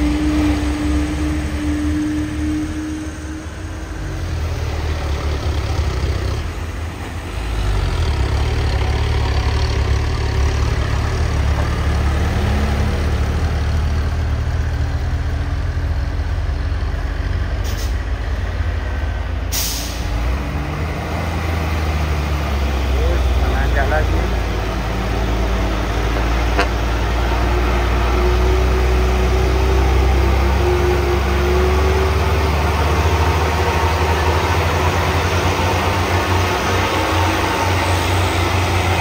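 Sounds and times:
truck diesel engine running: 0.0s - 39.0s
air brake hisses: 17.6s - 18.0s, 19.5s - 20.1s.

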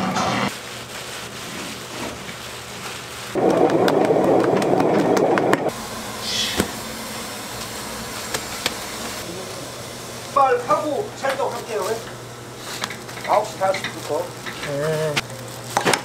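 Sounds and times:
shop equipment rumbling: 10.3s - 16.0s.

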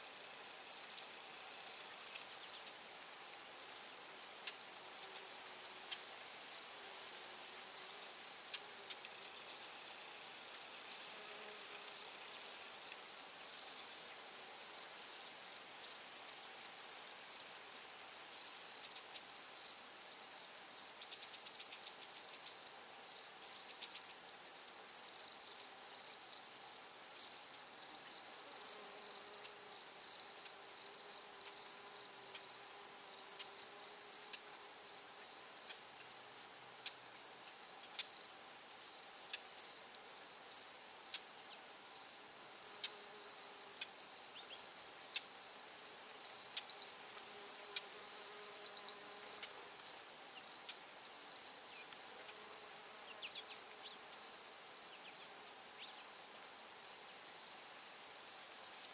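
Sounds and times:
crickets trilling: 12.3s - 58.9s.

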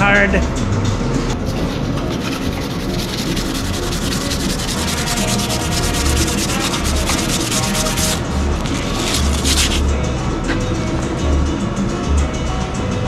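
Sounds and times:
sandpaper scrubbing on steel: 1.4s - 9.8s.

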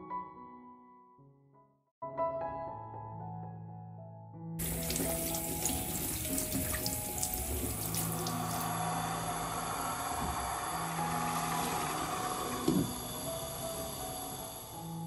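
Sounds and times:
tap water running: 4.6s - 15.0s.

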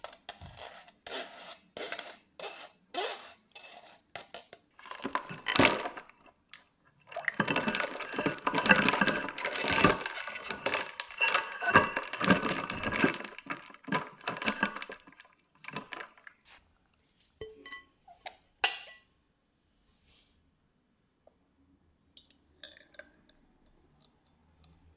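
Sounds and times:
spatula stirring in glass bowl: 7.1s - 16.3s
glass clinks: 17.4s - 17.9s.

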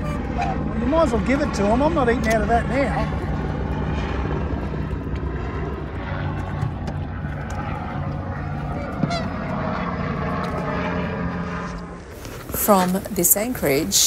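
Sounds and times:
swans honking: 0.0s - 0.7s, 8.7s - 9.7s
low motor drone: 0.0s - 14.0s.

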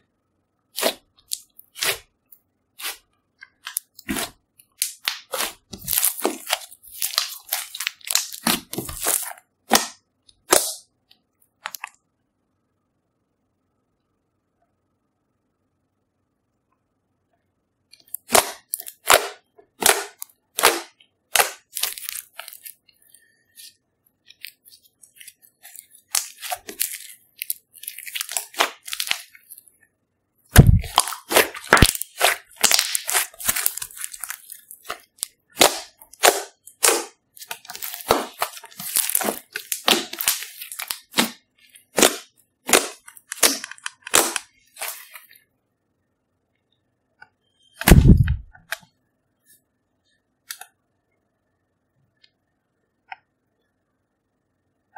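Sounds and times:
slime popping and crackling: 3.6s - 10.8s, 18.2s - 22.8s, 25.2s - 29.6s, 30.6s - 45.1s.

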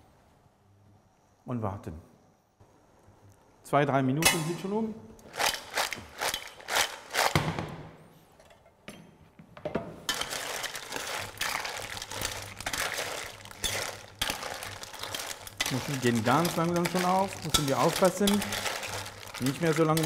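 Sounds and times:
pot and shells clinking: 5.2s - 7.3s, 10.1s - 20.0s.

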